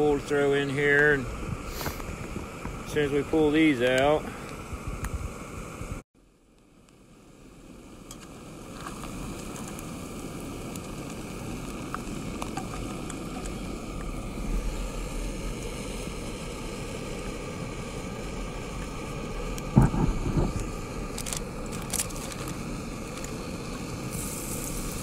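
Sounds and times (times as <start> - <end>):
oil sizzling: 0.0 - 6.0, 6.9 - 25.0
gas stove burner rushing: 8.0 - 25.0
short knock: 19.8 - 20.6.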